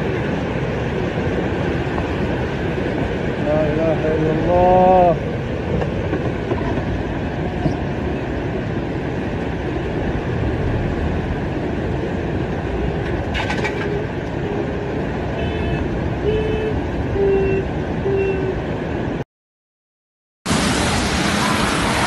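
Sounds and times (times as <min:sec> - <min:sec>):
floodwater rushing: 0:08.8 - 0:13.4, 0:20.5 - 0:22.0
car horn honks: 0:15.4 - 0:18.7.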